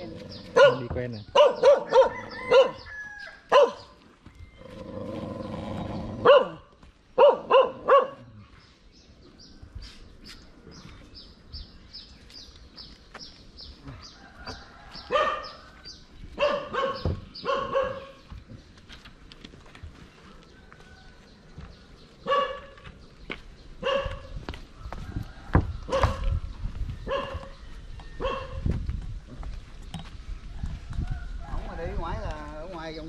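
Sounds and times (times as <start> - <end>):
dog barking: 0.5 - 2.9, 3.5 - 3.9, 6.2 - 8.3, 15.1 - 15.6, 16.4 - 18.2, 22.2 - 22.8, 23.8 - 24.3, 25.9 - 26.3, 27.1 - 27.6, 28.2 - 28.6.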